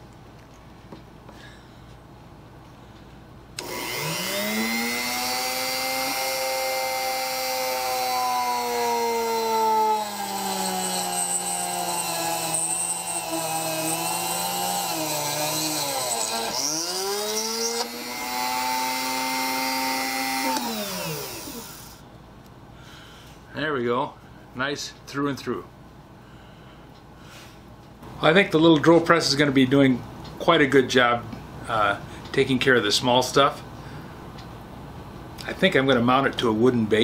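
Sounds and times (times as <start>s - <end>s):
rotary tool drilling steel: 3.6s - 22.0s.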